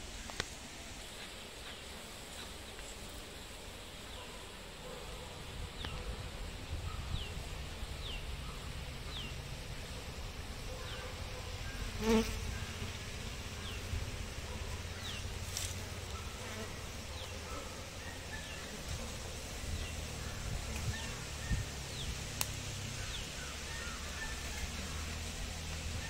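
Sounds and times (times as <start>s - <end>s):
bees buzzing: 11.8s - 26.0s.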